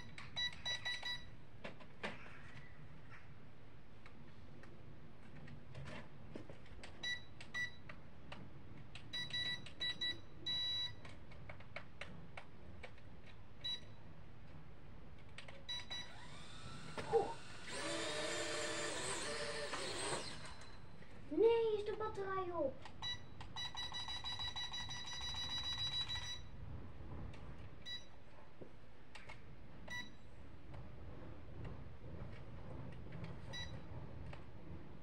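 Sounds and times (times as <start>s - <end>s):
toy jet whirring: 16.1s - 20.8s.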